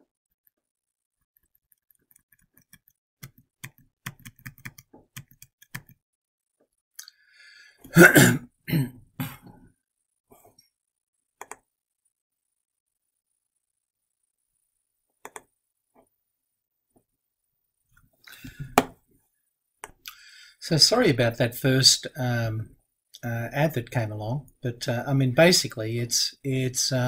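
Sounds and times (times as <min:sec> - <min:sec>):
man coughing: 0:07.9 - 0:09.6
mouse clicks: 0:15.2 - 0:15.5.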